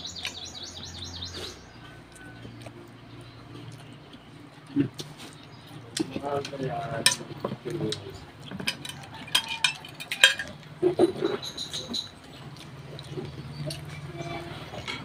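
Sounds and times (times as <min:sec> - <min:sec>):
plates and utensils clinking: 0:06.0 - 0:12.3, 0:13.1 - 0:15.0.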